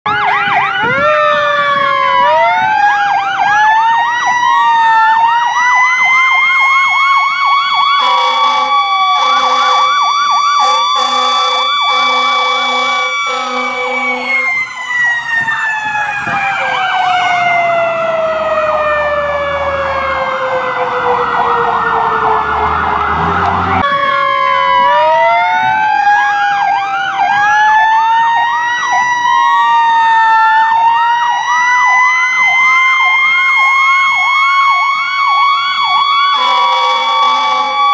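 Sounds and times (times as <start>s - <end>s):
fire engine sirens wailing: 0.0s - 37.9s
air horn blasts: 8.0s - 10.0s, 10.6s - 14.6s, 36.3s - 37.9s.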